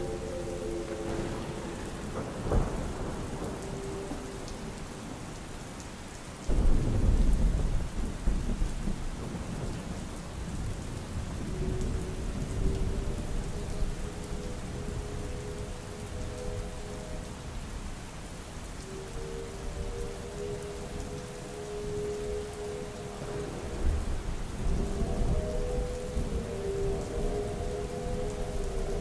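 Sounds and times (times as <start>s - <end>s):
synthesized train horn chord: 0.0s - 4.7s, 19.0s - 29.0s
steady rain: 0.0s - 29.0s
thunder crack and rumble: 1.0s - 5.2s, 6.5s - 14.0s.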